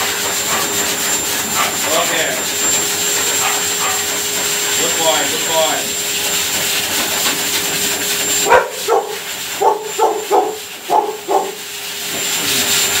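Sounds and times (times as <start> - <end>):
blow dryer hiss and whine: 0.0 - 13.0
dog barking: 3.4 - 4.1, 8.4 - 11.7.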